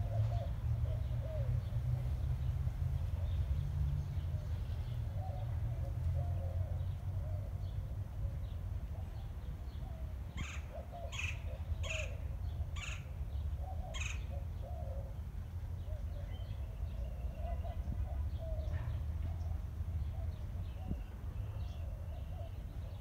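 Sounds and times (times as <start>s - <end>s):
bird giving harsh calls: 12.8s - 13.1s, 13.9s - 14.4s.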